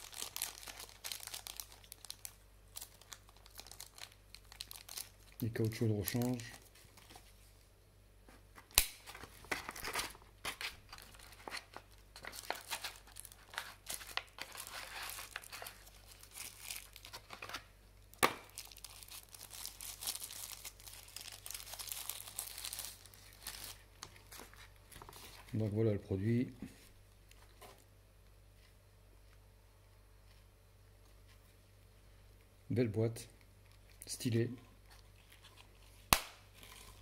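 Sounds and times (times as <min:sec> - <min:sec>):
plastic wrapping crinkling: 0:00.0 - 0:07.5, 0:09.0 - 0:25.6, 0:34.8 - 0:37.0.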